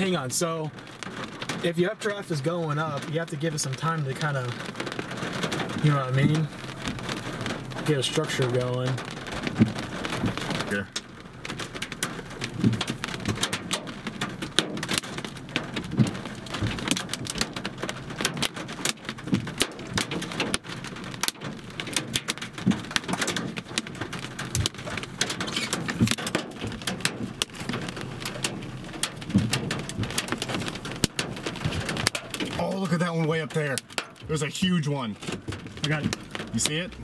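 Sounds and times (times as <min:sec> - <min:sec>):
rain and hail on windshield: 0:00.0 - 0:37.0
soft low thumps: 0:25.9 - 0:32.5.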